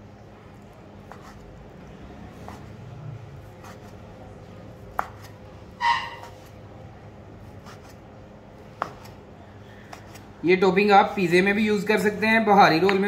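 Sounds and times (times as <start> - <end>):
knife chopping on wooden board: 4.9 - 5.4.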